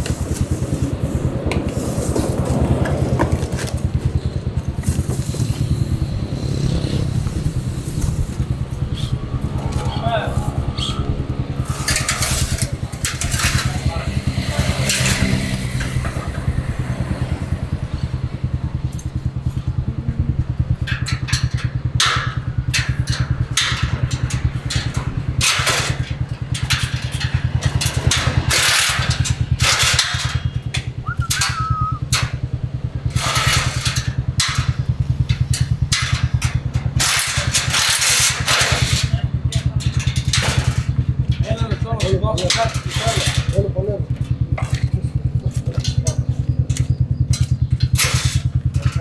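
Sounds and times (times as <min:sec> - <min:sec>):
loud noisy rushes: 0:00.0 - 0:21.9
motorcycle engine idling: 0:00.0 - 0:49.0.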